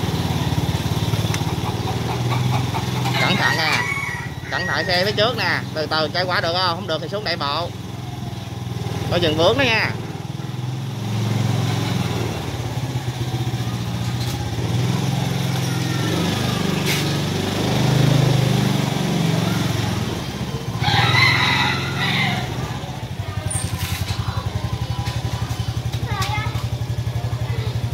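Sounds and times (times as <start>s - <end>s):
small engine running: 0.0s - 27.9s
rooster crowing: 3.0s - 5.6s, 20.8s - 22.9s.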